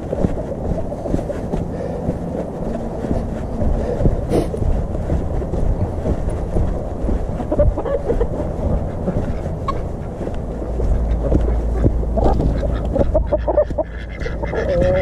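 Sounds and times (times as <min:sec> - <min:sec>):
wind rumbling on microphone: 0:00.0 - 0:15.0
poultry calls: 0:11.4 - 0:15.0.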